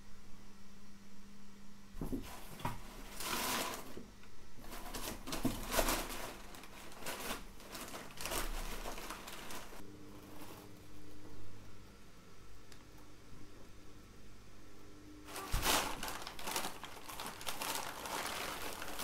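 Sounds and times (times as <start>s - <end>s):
paper rustling and crinkling: 2.0s - 4.0s, 4.6s - 10.8s, 15.3s - 19.0s.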